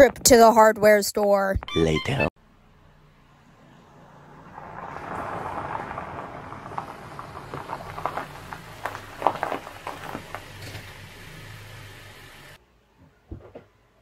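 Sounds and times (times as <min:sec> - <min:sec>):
car engine running low: 0:02.4 - 0:12.6
tyres crunching over gravel: 0:04.6 - 0:12.0.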